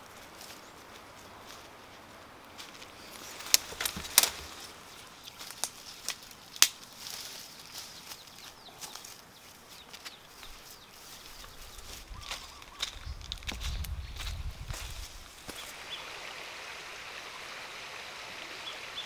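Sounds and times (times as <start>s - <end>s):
footsteps through dry undergrowth: 0.0s - 15.8s
leaves and branches rustling: 0.0s - 19.0s
twigs snapping: 2.6s - 9.1s, 12.2s - 15.6s.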